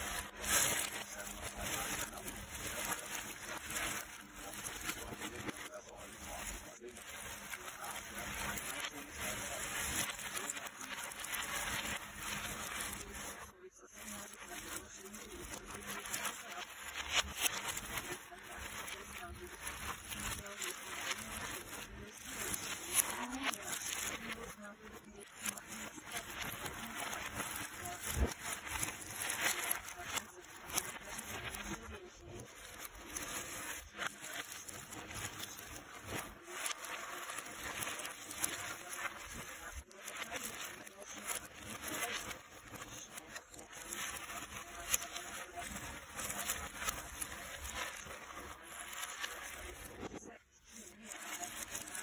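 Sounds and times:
puzzle pieces rustling and clicking: 0:00.0 - 0:50.2, 0:50.8 - 0:52.0.

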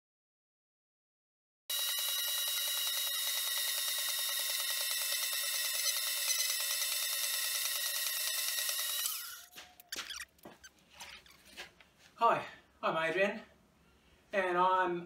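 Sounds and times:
bandsaw cutting metal bar: 0:01.7 - 0:09.6.

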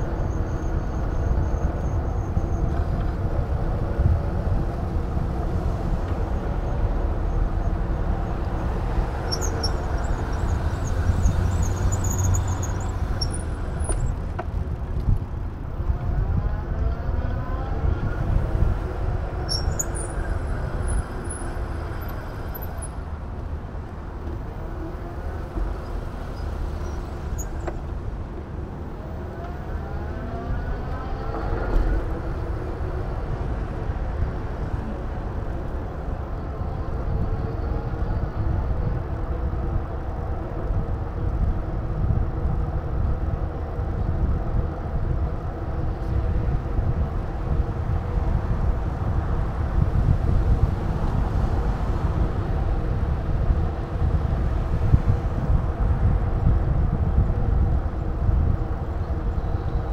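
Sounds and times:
droning traffic hum: 0:00.0 - 0:59.9
passing vehicle whine: 0:00.0 - 0:59.9
wind buffeting microphone: 0:00.0 - 0:59.9.

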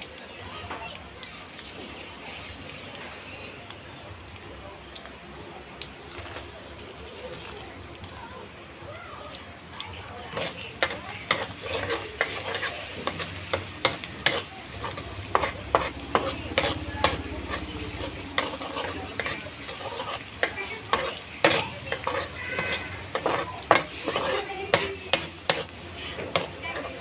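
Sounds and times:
garlic sizzling in oil: 0:00.0 - 0:27.0
metal spatula scraping a wok: 0:10.3 - 0:27.0.

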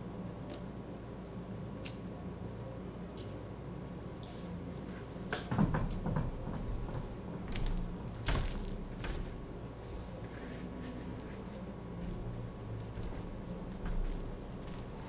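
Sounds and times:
steady low hum: 0:00.0 - 0:15.0
wicker chair creaking: 0:05.9 - 0:09.6
barefoot footsteps on paper scraps: 0:06.0 - 0:15.0.

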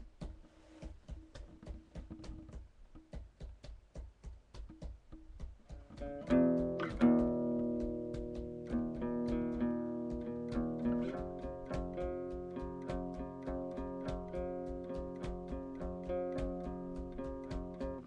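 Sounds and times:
acoustic guitar strumming: 0:05.9 - 0:18.0.

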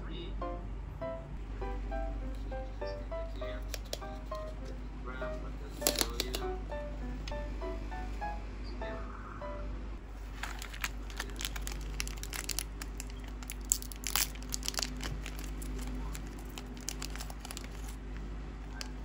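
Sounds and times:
plastic wrapper crinkling: 0:03.3 - 0:04.5, 0:05.7 - 0:06.5, 0:10.1 - 0:18.1.

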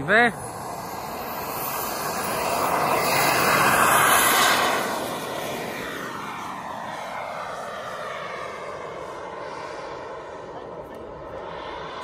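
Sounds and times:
model jet taking off: 0:00.0 - 0:12.0.

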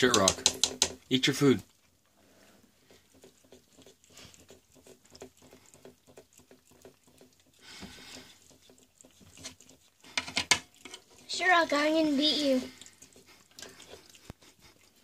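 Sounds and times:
cat licking and chewing: 0:00.2 - 0:15.0.

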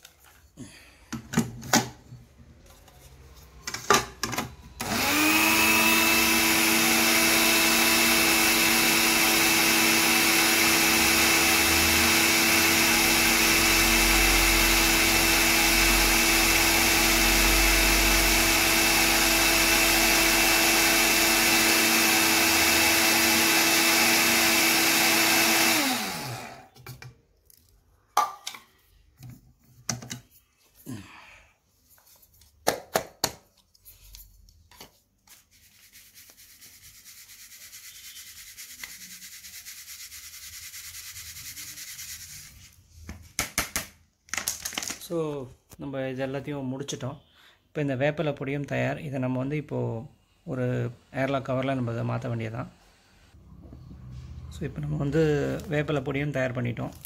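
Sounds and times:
electric blade grinder whining: 0:04.8 - 0:26.7.

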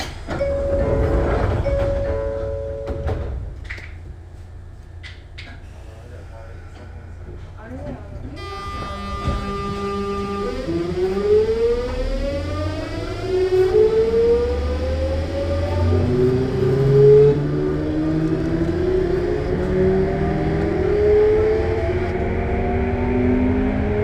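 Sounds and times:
train running gear rumble: 0:00.0 - 0:14.0
electric train inverter whine: 0:08.3 - 0:22.5.

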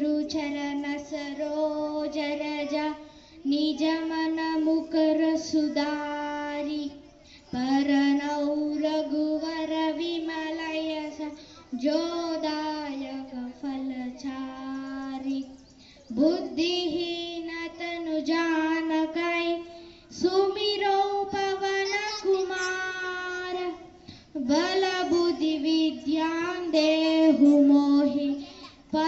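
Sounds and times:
child singing into a microphone: 0:00.0 - 0:29.0.

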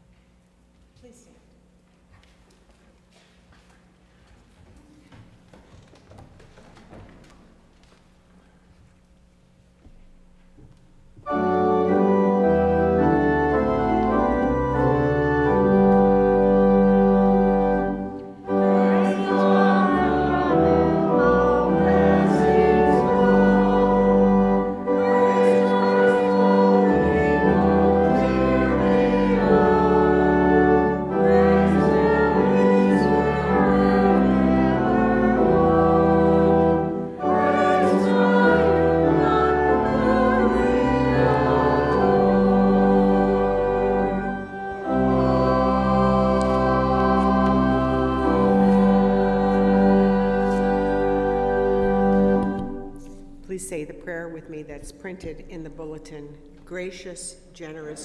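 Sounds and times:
church organ playing: 0:11.2 - 0:53.7
choir singing: 0:11.4 - 0:52.9.

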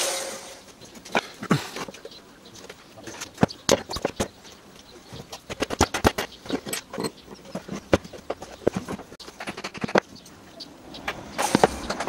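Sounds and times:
metal vise parts clicking and knocking: 0:05.5 - 0:10.0.

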